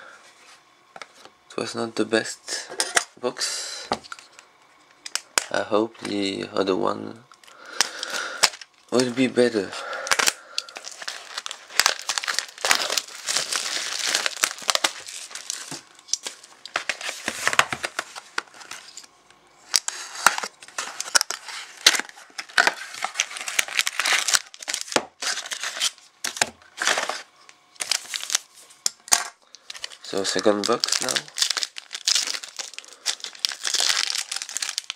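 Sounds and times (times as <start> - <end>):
plastic wrapping crinkling: 7.4 - 34.9.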